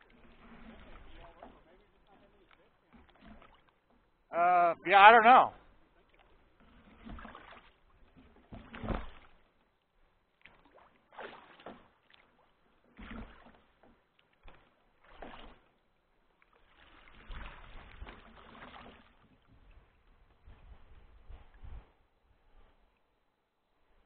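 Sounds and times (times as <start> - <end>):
kayak paddle strokes in water: 0.0 - 24.0.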